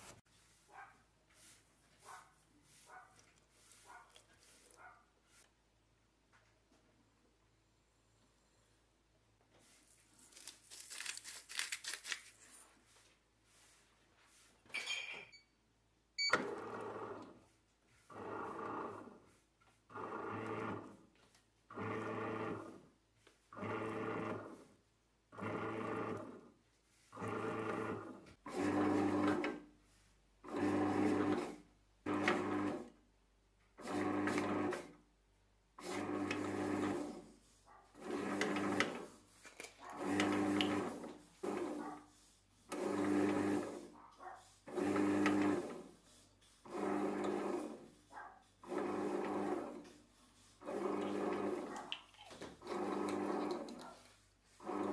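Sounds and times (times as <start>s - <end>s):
sugar pouring and rustling: 9.8s - 12.7s.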